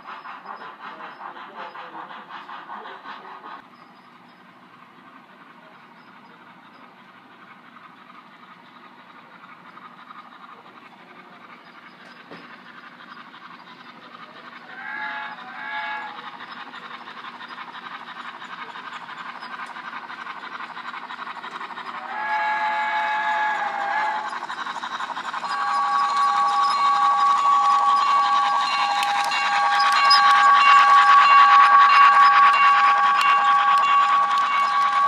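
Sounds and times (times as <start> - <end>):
model locomotive chuffing: 0.0 - 35.0
model train whistle: 14.8 - 16.2, 22.0 - 24.3, 25.4 - 35.0
steady high tone: 25.4 - 35.0.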